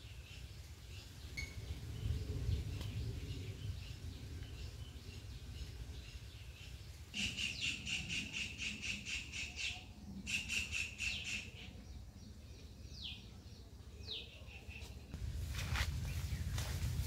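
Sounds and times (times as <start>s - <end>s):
birds chirping: 0.0s - 15.2s.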